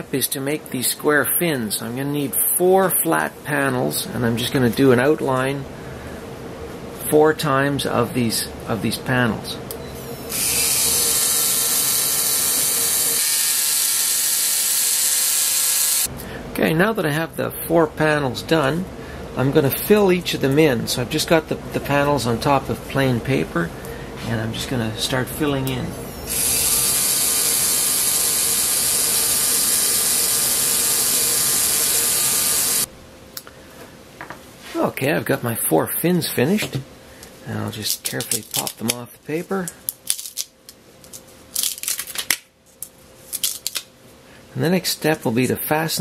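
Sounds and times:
faint steady hum: 0.0 - 46.0
pen motor whirr: 10.3 - 16.1, 26.2 - 32.9.

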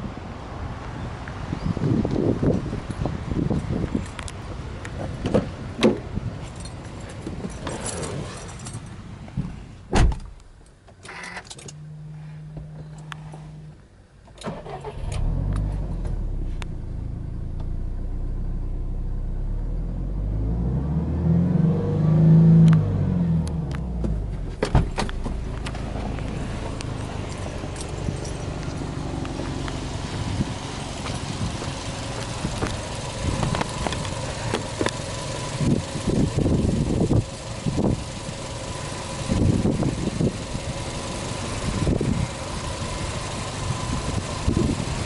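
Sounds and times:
car engine starting and idling: 4.0 - 45.0
car door thump: 9.9 - 10.4, 24.0 - 25.4.

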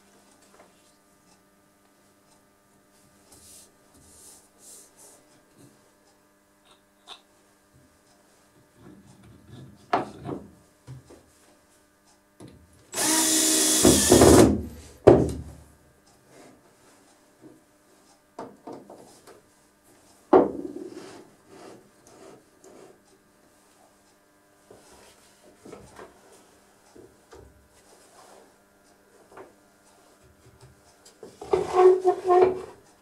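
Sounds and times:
power drill running: 12.9 - 14.8.

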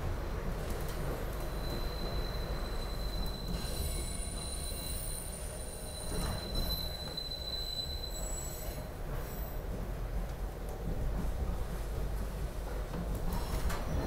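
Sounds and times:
subway train rumble: 0.0 - 14.0
high-pitched wheel squeal: 1.5 - 8.9.

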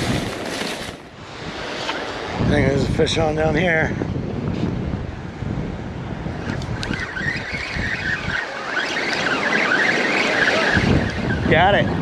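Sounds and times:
surf: 0.0 - 12.0
wind buffeting microphone: 0.0 - 12.0
fishing reel gears whirring: 6.4 - 11.6.

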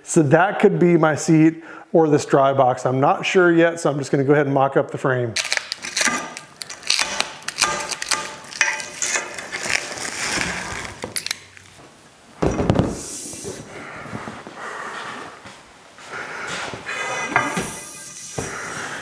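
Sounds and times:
plastic wrap crinkling and tearing: 5.4 - 11.8
metal tubes clinking: 8.0 - 9.9
thump: 12.4 - 13.1.

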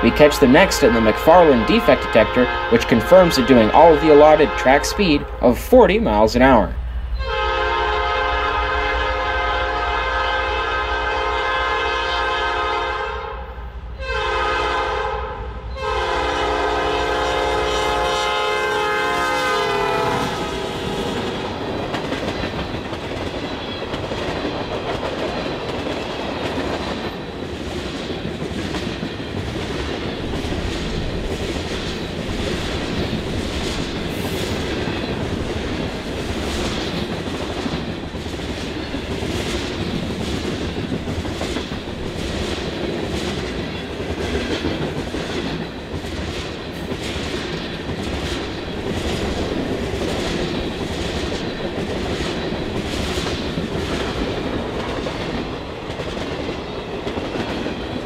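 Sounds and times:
locomotive horn blasts: 0.0 - 5.4, 7.2 - 21.2
freight cars rumbling: 0.0 - 7.3.

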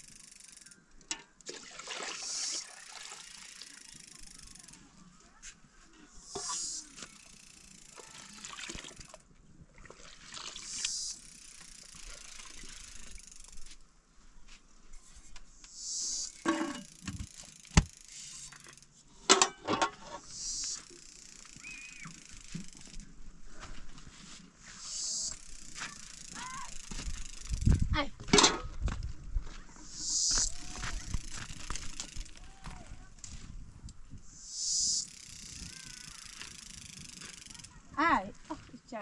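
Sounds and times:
liquid poured into metal pots: 1.4 - 3.7
metal pots and utensils clinking: 16.5 - 16.9, 19.3 - 20.0.

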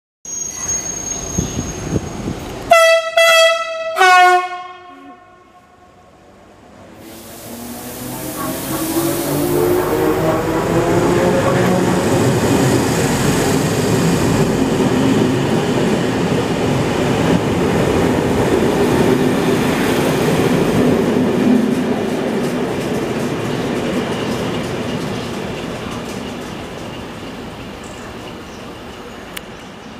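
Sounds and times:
train wheels rumbling on rails: 6.8 - 29.9.

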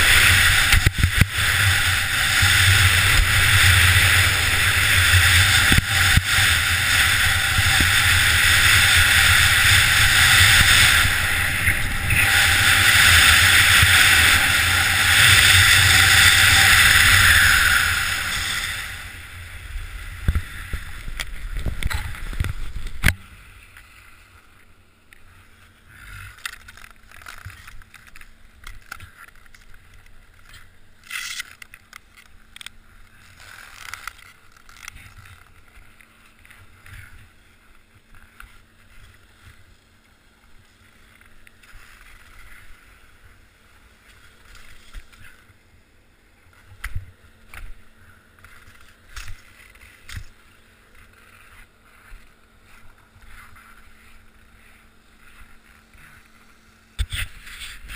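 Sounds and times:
wind rushing: 0.0 - 22.9
skis scraping on snow: 0.0 - 24.5, 32.9 - 45.7, 46.4 - 57.9
skis carving snow: 0.0 - 57.9.

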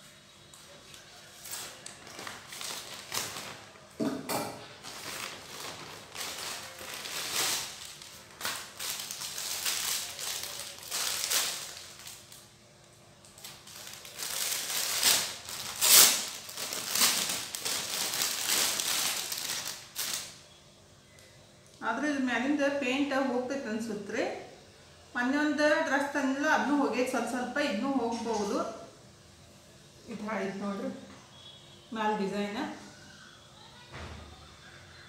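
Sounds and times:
plastic packaging crinkling: 0.6 - 20.4.

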